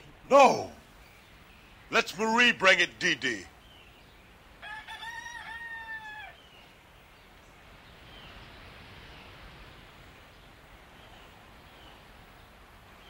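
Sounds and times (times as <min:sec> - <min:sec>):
bird chirps: 0:00.5 - 0:04.4
rooster crowing: 0:04.6 - 0:06.5.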